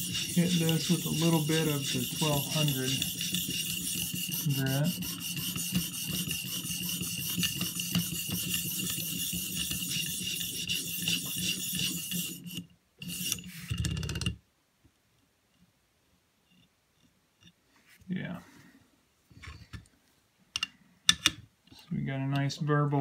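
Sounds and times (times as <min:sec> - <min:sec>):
sharpening stone scraping knife: 0:00.0 - 0:13.7.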